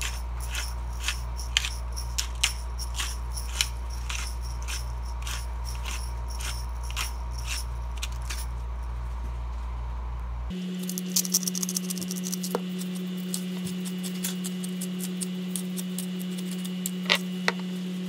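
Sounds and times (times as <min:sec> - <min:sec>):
pepper grinder crunching clicks: 0:00.0 - 0:08.4, 0:10.8 - 0:17.2
steady low hum: 0:00.0 - 0:18.0.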